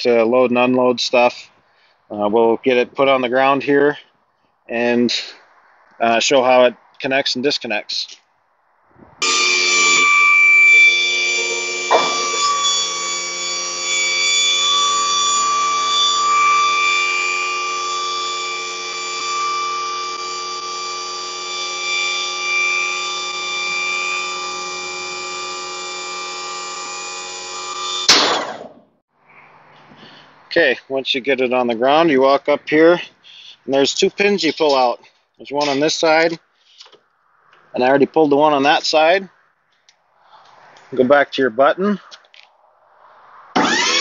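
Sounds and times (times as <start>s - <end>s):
pump motor whining: 9.2s - 28.7s, 43.6s - 44.0s
motor cutting off with clunk: 11.7s - 13.0s.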